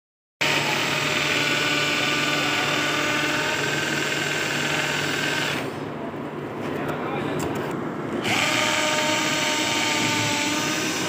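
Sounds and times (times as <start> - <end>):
cordless drill boring into wall: 0.4 - 5.8, 8.2 - 11.0.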